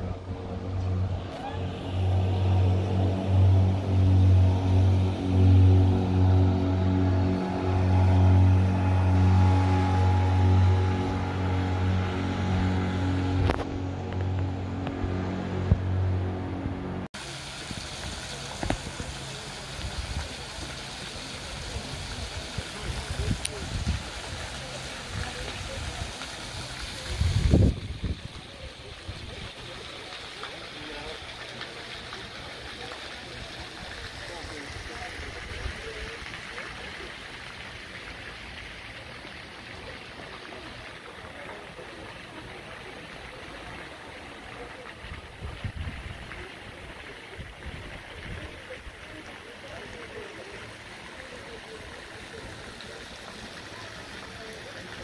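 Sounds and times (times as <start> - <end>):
music track: 0.0 - 17.1
river water rushing: 0.0 - 19.8
faint distant voices: 0.0 - 55.0
river water flowing past rocks: 0.0 - 55.0.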